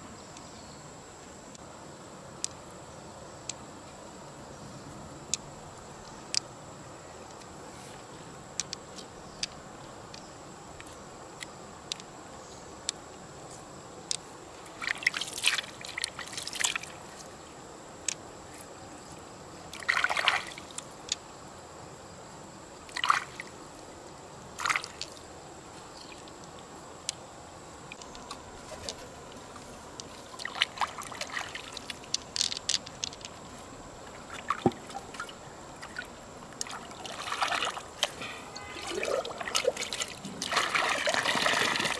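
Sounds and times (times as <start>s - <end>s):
river hissing: 1.0s - 41.9s
pearls clicking together: 31.8s - 33.5s.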